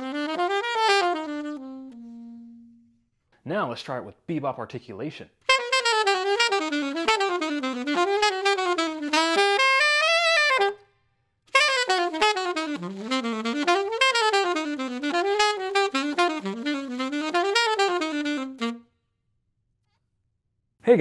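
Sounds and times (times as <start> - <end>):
alto saxophone fast bebop line: 0.0 - 2.8, 5.4 - 10.8, 11.5 - 18.9.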